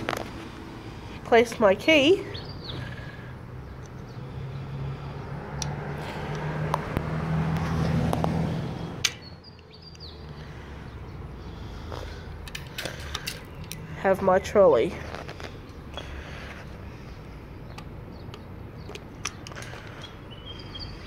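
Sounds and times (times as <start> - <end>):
small clicks of chain plug: 12.4 - 13.8.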